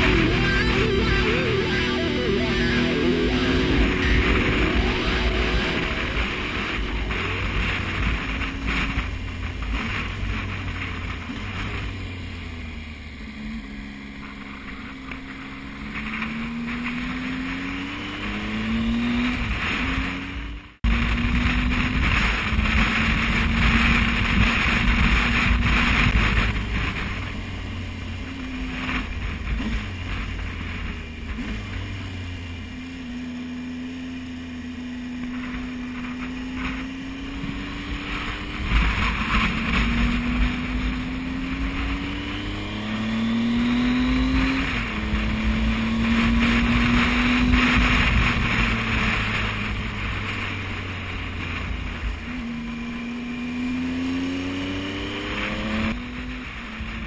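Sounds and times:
motorcycle engine accelerating: 0:00.0 - 0:57.0
wind noise on microphone: 0:03.3 - 0:12.0, 0:20.8 - 0:27.6, 0:35.4 - 0:53.2.

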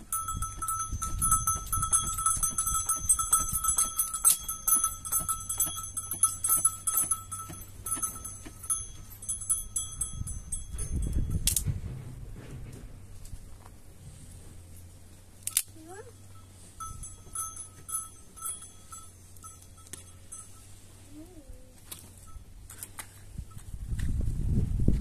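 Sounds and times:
livestock bells jingling: 0:00.0 - 0:11.6, 0:16.1 - 0:21.1, 0:22.1 - 0:22.6.

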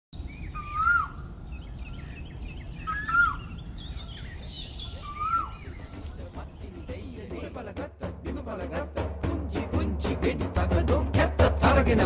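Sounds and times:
small birds chirping: 0:00.2 - 0:07.8
koel calling: 0:00.5 - 0:01.3, 0:02.8 - 0:03.6, 0:04.7 - 0:07.5.

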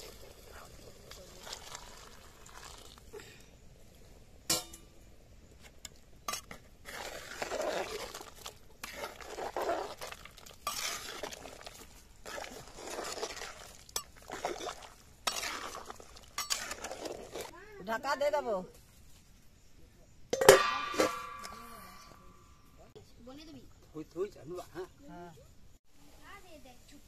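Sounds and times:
ladle swishing through soup: 0:06.8 - 0:17.5.

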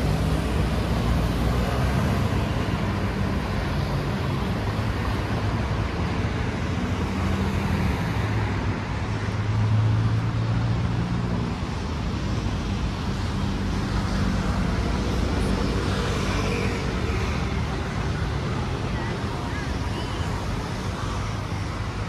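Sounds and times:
cars passing: 0:00.0 - 0:22.0.

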